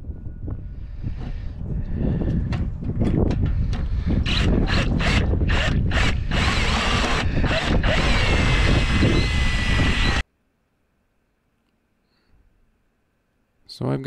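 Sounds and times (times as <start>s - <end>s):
wind rumble on microphone: 0.0s - 10.2s.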